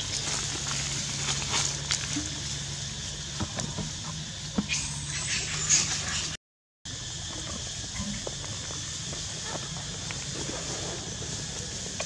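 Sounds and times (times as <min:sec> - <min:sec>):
dry leaves rustling: 0:00.0 - 0:03.4.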